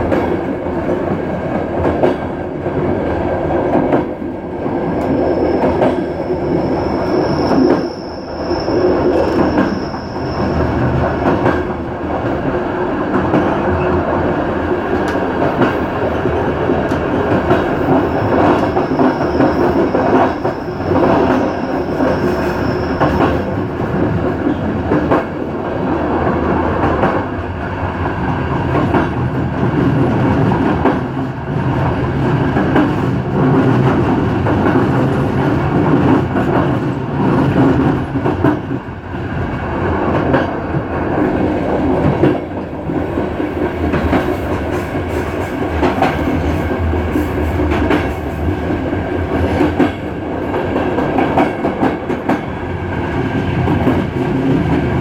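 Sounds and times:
train wheels clacking: 0.0s - 38.9s, 40.0s - 55.0s
train wheel squeal: 4.8s - 11.6s, 17.6s - 24.6s.

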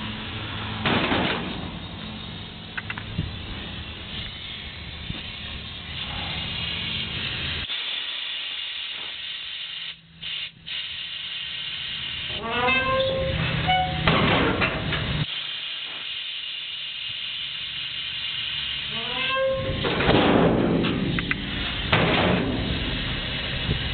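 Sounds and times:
compressed air hissing: 2.1s - 14.0s, 15.0s - 19.9s, 20.7s - 23.9s.

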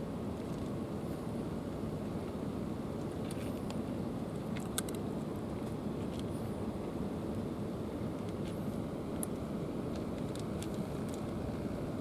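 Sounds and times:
low outdoor rumble: 0.0s - 12.0s
cats crunching dry kibble: 3.0s - 6.3s, 8.2s - 11.6s.

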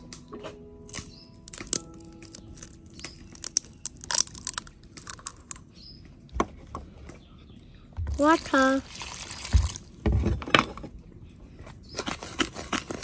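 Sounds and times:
eggshells cracking: 0.9s - 5.8s, 8.2s - 10.0s.

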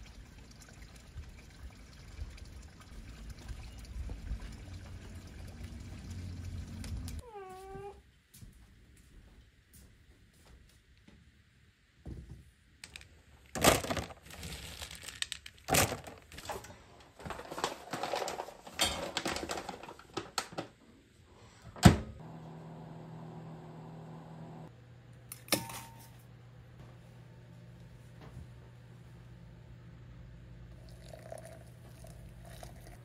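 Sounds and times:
paper packet rustling: 13.6s - 16.6s, 17.2s - 20.6s
microwave door shutting: 21.8s - 22.2s
microwave oven humming: 21.8s - 33.0s.

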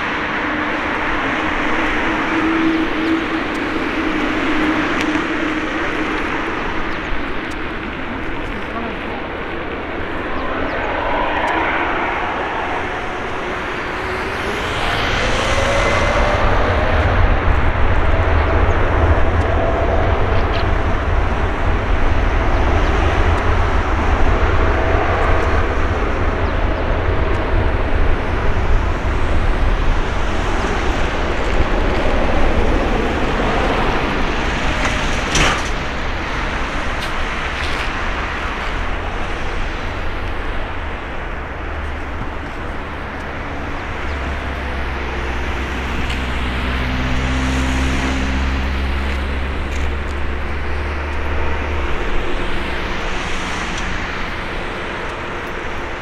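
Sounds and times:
jet engines rumbling with whine: 0.0s - 56.0s.

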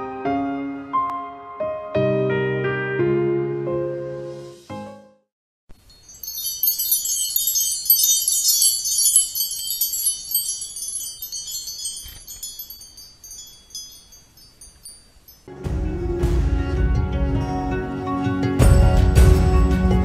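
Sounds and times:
tinkling chimes: 5.7s - 15.5s.

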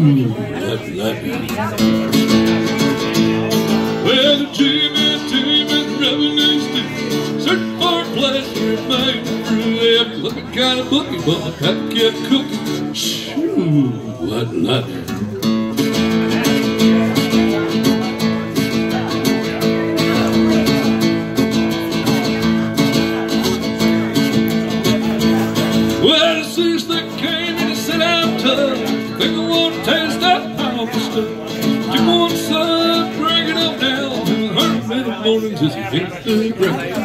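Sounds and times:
acoustic guitar strumming: 0.0s - 37.0s
person singing: 3.8s - 15.4s, 26.0s - 37.0s.

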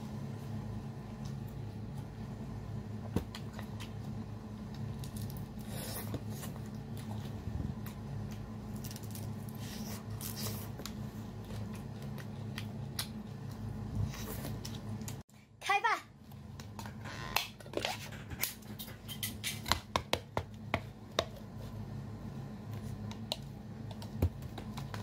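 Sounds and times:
steady low hum: 0.0s - 25.0s
wet chewing and smacking: 10.2s - 13.7s.

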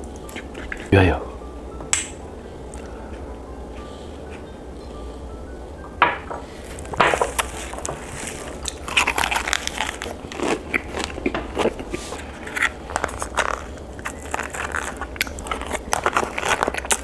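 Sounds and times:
biting and chewing food: 0.0s - 0.9s, 6.7s - 17.0s
crunchy crackly clicks: 12.5s - 17.0s.

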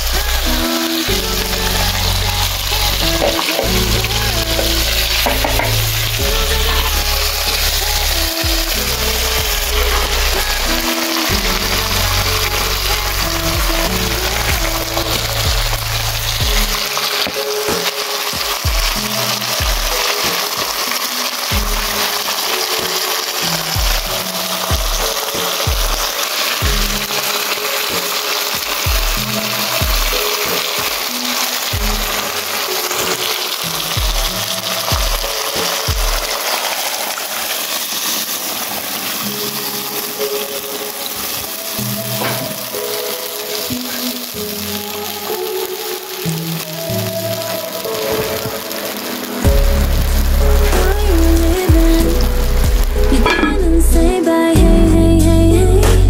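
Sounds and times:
background music with bass: 0.0s - 27.3s, 46.4s - 56.0s
fish sizzling in hot oil: 0.0s - 55.8s.

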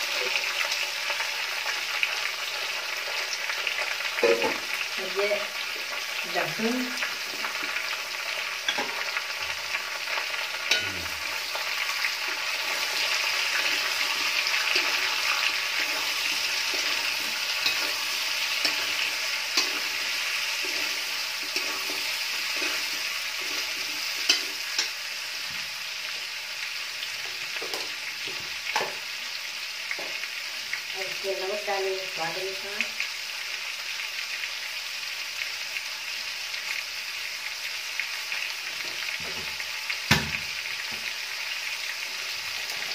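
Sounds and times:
onions frying in hot oil: 0.0s - 42.9s
spoon scraping a pan: 8.6s - 9.2s, 10.5s - 11.6s, 12.7s - 25.0s.

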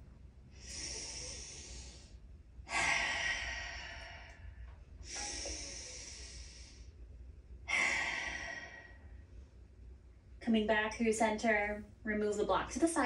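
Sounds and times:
woman breathing deeply: 0.4s - 9.6s.

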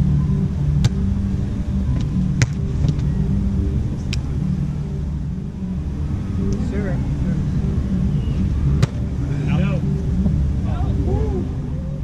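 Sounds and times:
steady low rumble: 0.0s - 12.0s
hands slapping volleyball: 2.0s - 3.0s, 8.8s - 9.0s.

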